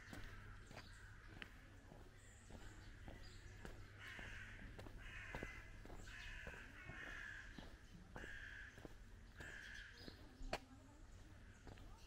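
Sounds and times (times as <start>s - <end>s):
crows cawing: 0.0s - 1.6s, 3.0s - 10.2s.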